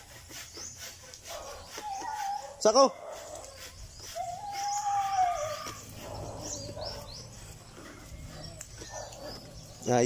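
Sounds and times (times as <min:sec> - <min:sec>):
small birds chirping: 0:00.0 - 0:10.0
animal long pitched call: 0:04.2 - 0:07.0.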